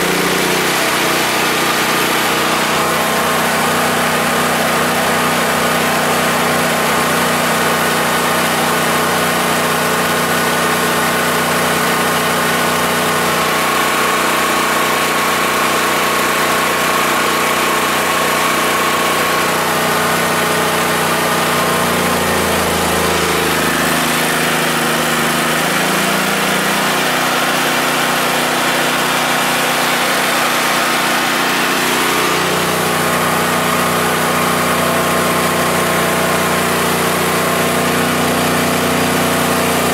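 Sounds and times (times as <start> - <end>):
hair dryers blowing: 0.0 - 7.4, 17.6 - 39.9
generator engine running: 0.0 - 39.9.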